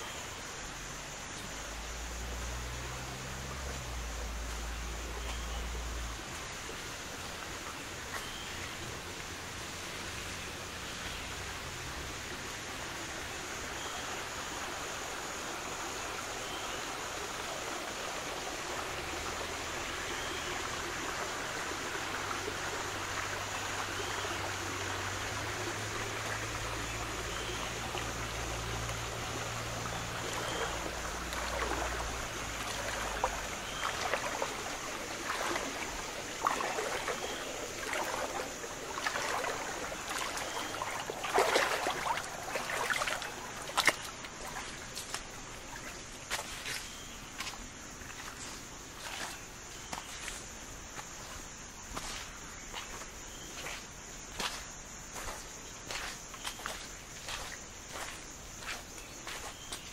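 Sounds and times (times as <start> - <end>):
stream flowing: 0.0 - 59.9
water splashing: 21.7 - 59.9.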